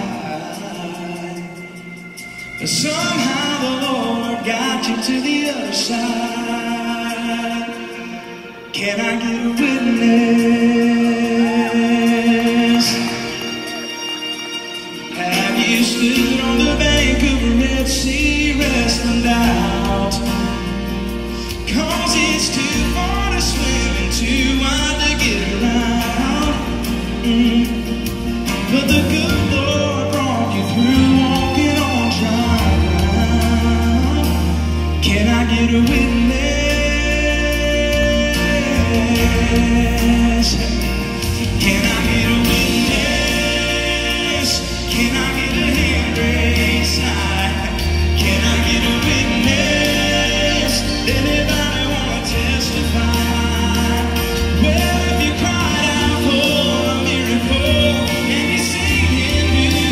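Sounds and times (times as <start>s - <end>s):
strummed acoustic guitars: 0.0s - 59.9s
voices singing: 0.0s - 59.9s
low bass notes: 15.8s - 59.9s.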